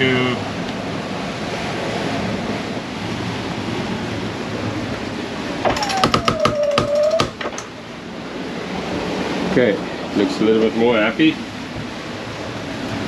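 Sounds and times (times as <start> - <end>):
sea: 0.0 - 13.0
wind: 0.0 - 13.0
squeak: 5.7 - 7.4.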